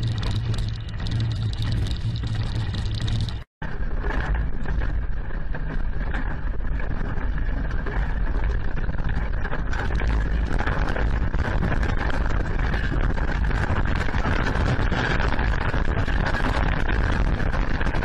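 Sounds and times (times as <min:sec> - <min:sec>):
earthquake rumbling and rattling: 0:00.0 - 0:18.0.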